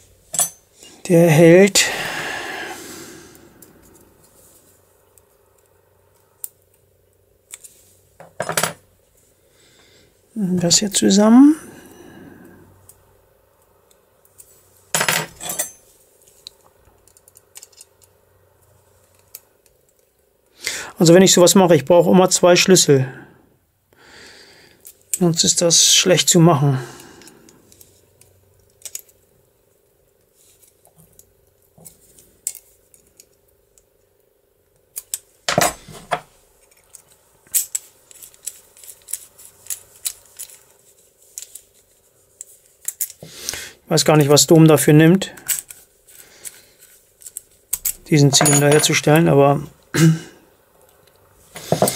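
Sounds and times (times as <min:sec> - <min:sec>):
faint steady hum: 0:00.0 - 0:51.9
metal tools clinking on lock: 0:15.0 - 0:15.8, 0:47.7 - 0:49.2.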